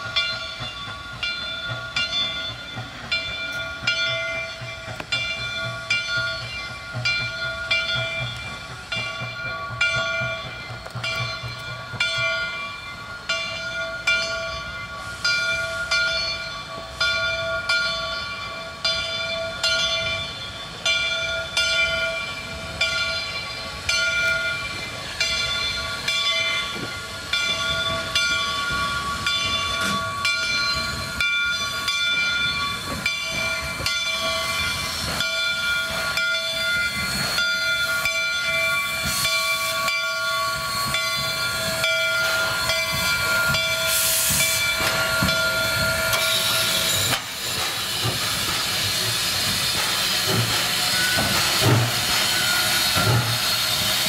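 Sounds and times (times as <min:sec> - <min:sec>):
locomotive exhaust beat: 0:00.0 - 0:54.0
steam hissing: 0:00.0 - 0:54.0
chime steam whistle blasts: 0:11.1 - 0:54.0.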